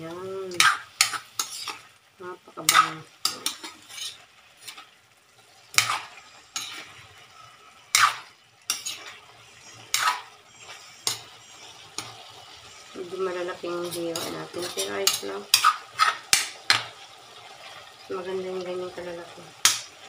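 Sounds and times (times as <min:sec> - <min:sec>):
meat sizzling: 0:00.0 - 0:20.0
metal spatula scraping a wok: 0:00.5 - 0:01.9, 0:02.6 - 0:05.0, 0:05.7 - 0:16.9.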